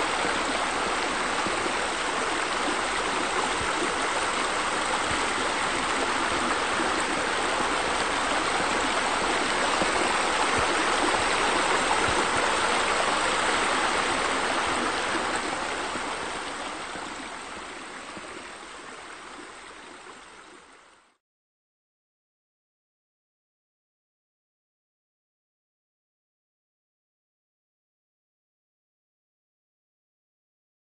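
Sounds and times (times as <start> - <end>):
fountain water splashing: 0.0 - 20.4.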